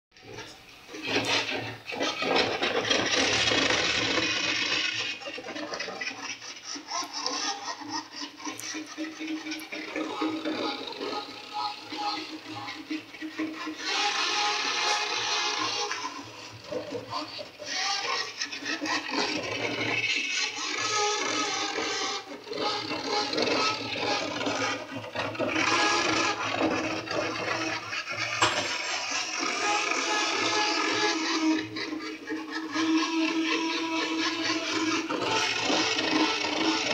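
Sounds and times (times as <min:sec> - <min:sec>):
small motors turning gear wheels: 0:00.4 - 0:36.9.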